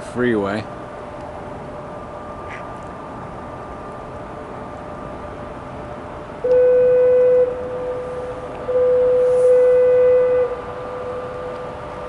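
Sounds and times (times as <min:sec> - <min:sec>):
faint steady horn tone: 0:06.4 - 0:12.0
foghorn blasts: 0:06.4 - 0:12.0.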